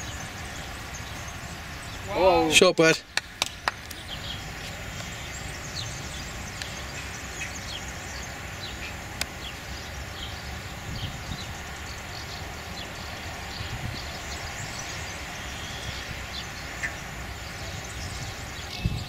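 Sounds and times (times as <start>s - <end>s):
birds chirping: 0.0s - 19.0s
low background noise: 0.0s - 19.0s
sharp clicks: 3.1s - 4.0s.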